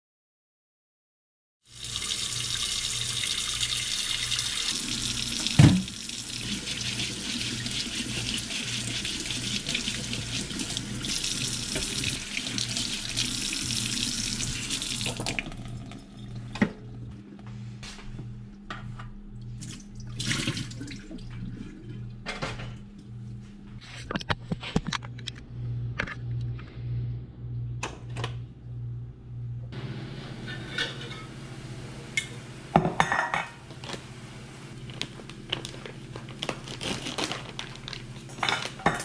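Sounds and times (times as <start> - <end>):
water splashing in a steel sink: 1.7 - 16.6, 19.6 - 22.0
low pulsing hum: 16.2 - 20.1, 21.0 - 32.7
pots and dishes clattering: 30.4 - 31.4, 32.2 - 33.6, 38.3 - 39.0.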